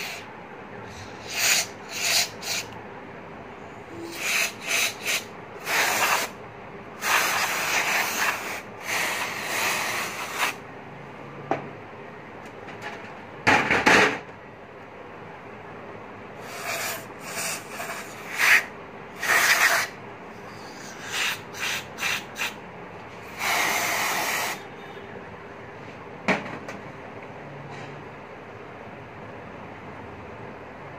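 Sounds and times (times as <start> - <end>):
aerosol spray hissing: 1.2 - 2.7, 4.0 - 6.4, 7.0 - 10.6, 16.4 - 18.6, 21.0 - 22.6, 23.4 - 24.6.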